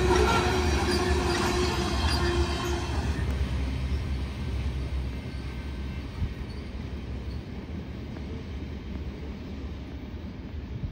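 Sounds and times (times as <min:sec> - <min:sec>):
train wheel squeal: 0:00.0 - 0:07.8
freight train rolling on rails: 0:00.0 - 0:10.9.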